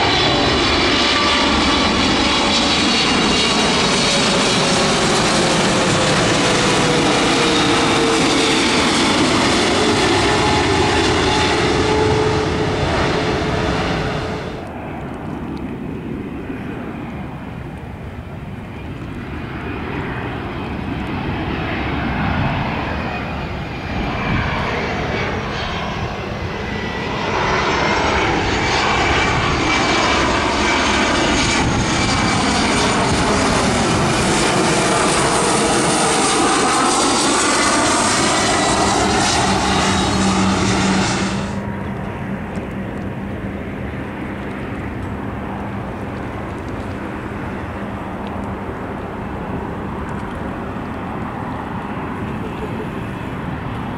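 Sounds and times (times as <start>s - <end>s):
distant jet airliner approaching: 0.0s - 53.9s
jet airliner passing low overhead: 0.0s - 53.9s.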